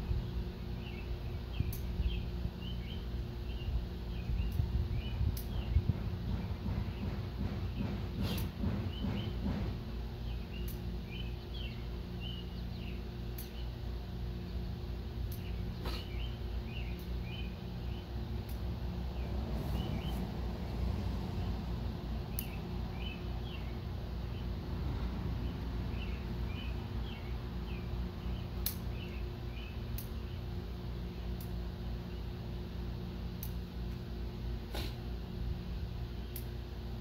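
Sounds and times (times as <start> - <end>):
small birds chirping: 0.0 - 20.3, 21.4 - 24.6, 25.3 - 37.0
low background hum: 0.0 - 37.0
sharp clicks: 33.4 - 33.6.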